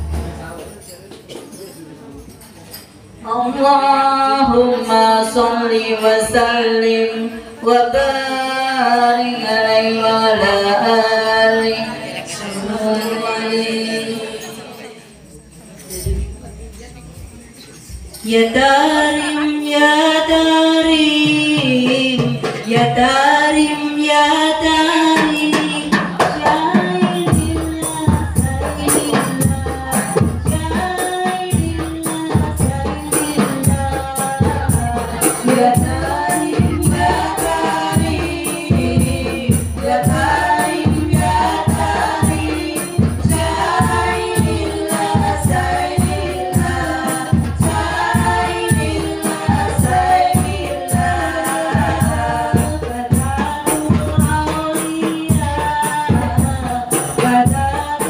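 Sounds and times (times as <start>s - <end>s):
frame drums beating: 0.0s - 1.4s, 20.0s - 58.0s
women singing together: 3.2s - 15.2s, 18.2s - 58.0s.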